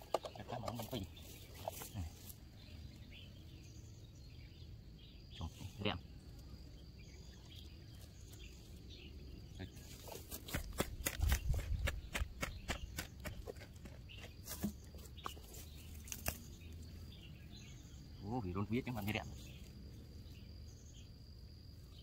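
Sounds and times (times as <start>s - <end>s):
wooden stick scraping soil: 0.0s - 2.4s, 9.7s - 16.5s.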